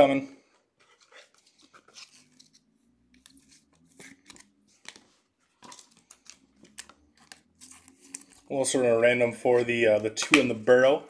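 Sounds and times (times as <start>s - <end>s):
trading cards clicking and rustling: 3.2s - 8.5s.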